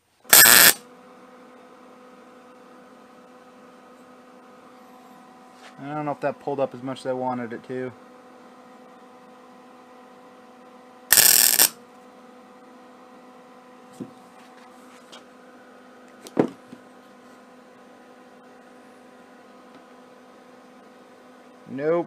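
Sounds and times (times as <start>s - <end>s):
steady hum: 0.0s - 12.0s
welding arc crackle: 0.3s - 0.8s, 11.1s - 11.7s.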